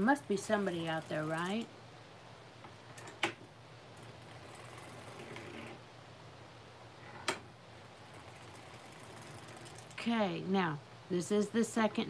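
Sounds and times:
low steady hum: 0:00.0 - 0:12.0
sock machine clicks: 0:08.0 - 0:10.0.

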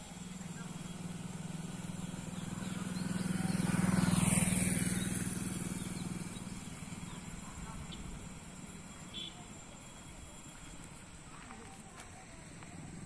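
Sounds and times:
vehicle engine passing by: 0:00.0 - 0:09.0.

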